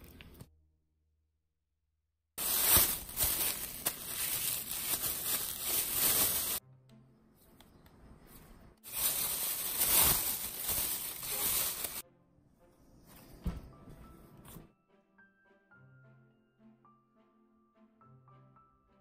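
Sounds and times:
plastic gloves crinkling: 0:02.4 - 0:06.6, 0:08.8 - 0:12.0.

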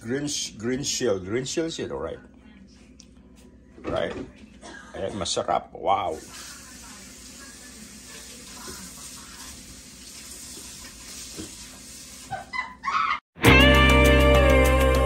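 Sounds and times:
background music: 0:13.4 - 0:15.0.

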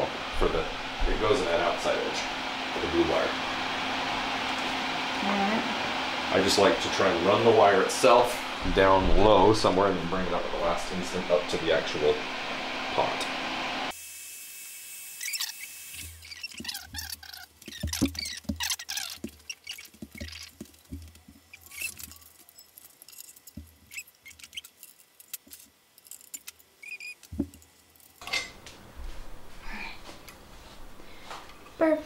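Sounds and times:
short squeaks: 0:15.2 - 0:27.5.

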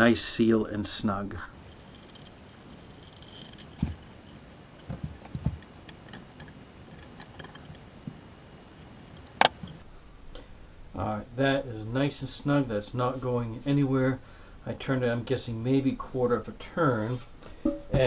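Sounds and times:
pliers clicking and rattling: 0:01.6 - 0:09.8.

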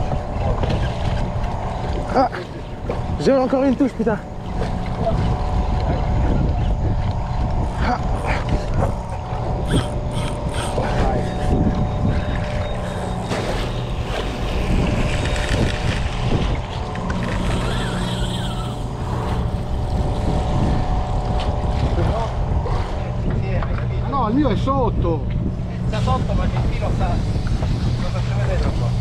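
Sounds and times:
boat engine running: 0:00.0 - 0:29.0
water noise: 0:00.0 - 0:29.0
wind: 0:00.0 - 0:29.0
fishing reel clicks: 0:09.6 - 0:10.8, 0:17.2 - 0:19.0.

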